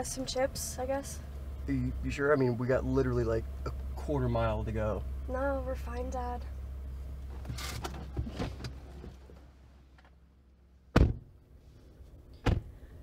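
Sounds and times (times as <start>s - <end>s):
car door shutting: 7.2s - 10.1s, 10.9s - 11.4s, 12.4s - 12.8s.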